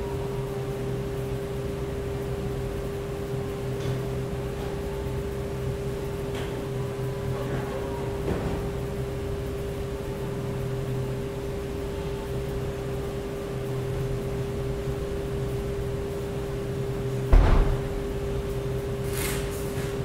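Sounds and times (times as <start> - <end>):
mechanical hum: 0.0 - 20.0
loud thud: 17.3 - 18.1.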